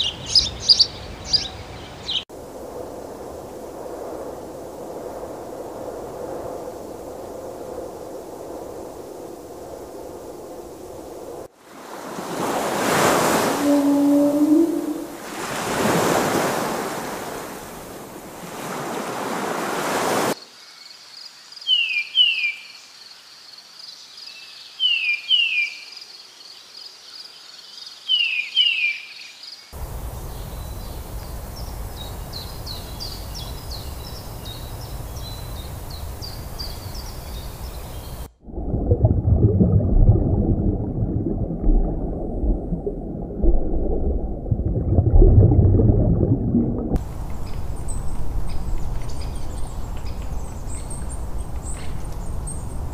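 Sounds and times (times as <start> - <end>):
ocean surf: 2.4 - 20.4
downward-sliding bird chirps: 13.5 - 15.2.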